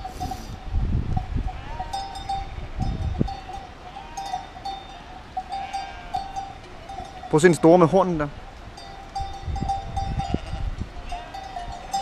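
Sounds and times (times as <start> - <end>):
sheep bells clanking: 0.0 - 12.0
sheep bleating: 1.5 - 2.1, 3.4 - 4.4, 5.5 - 7.0.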